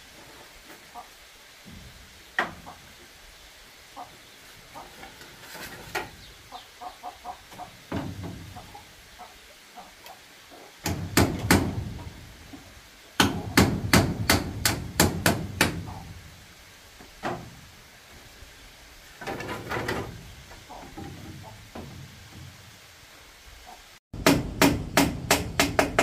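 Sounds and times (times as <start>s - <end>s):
hammer striking bamboo: 10.8s - 12.1s, 13.2s - 16.0s, 24.2s - 26.0s.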